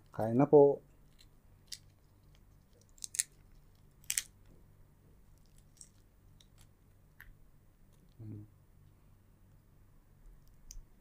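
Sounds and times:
shrimp shells crackling: 2.8s - 3.4s, 4.0s - 4.3s.

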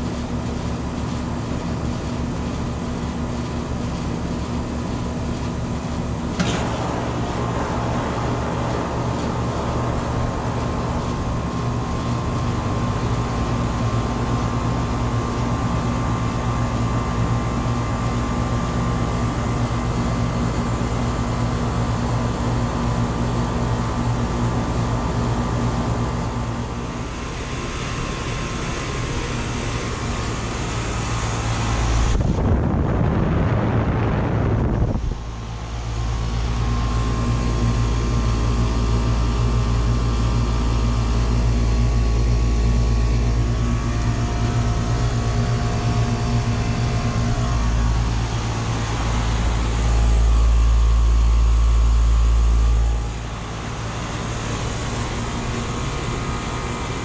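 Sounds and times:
air conditioner unit humming: 0.0s - 57.0s
low rumbling: 6.4s - 13.8s, 26.2s - 38.4s, 41.6s - 57.0s.

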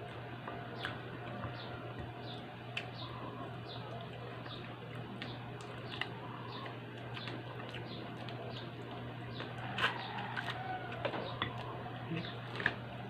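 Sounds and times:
person chewing: 2.7s - 12.9s.

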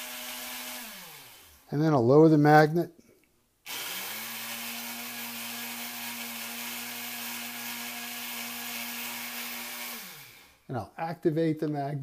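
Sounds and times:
electric motor hum and whir: 0.0s - 1.6s, 3.7s - 10.6s.

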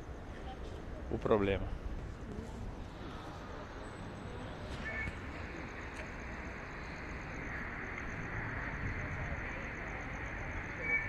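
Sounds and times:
low street rumble: 0.0s - 11.0s
rapidly pulsing high tone: 3.2s - 11.0s.

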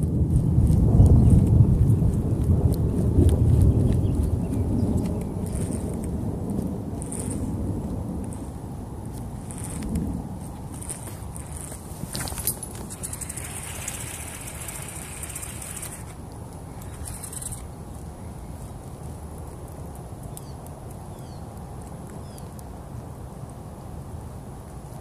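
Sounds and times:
steady low rumble: 0.0s - 20.3s
high hissing whir: 11.5s - 16.2s, 16.8s - 17.7s.

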